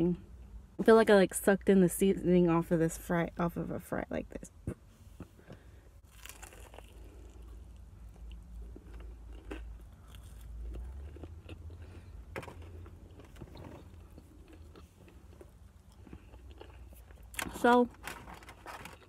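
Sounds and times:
low steady hum: 0:00.0 - 0:19.0
chewing crunchy fried food: 0:06.0 - 0:17.6.

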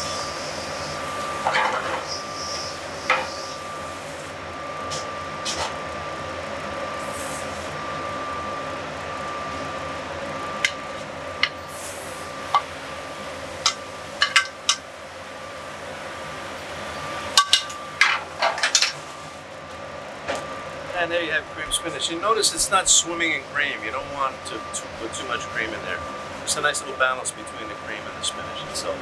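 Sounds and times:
faint high whine: 0:00.0 - 0:29.0
kitchen hum: 0:00.0 - 0:29.0.

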